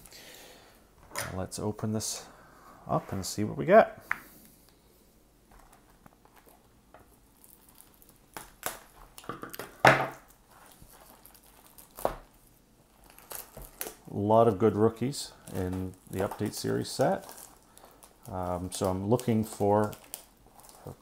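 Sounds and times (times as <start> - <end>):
plastic film crinkling: 5.5 - 21.0
plastic wrap ripping: 5.6 - 14.2, 14.8 - 21.0.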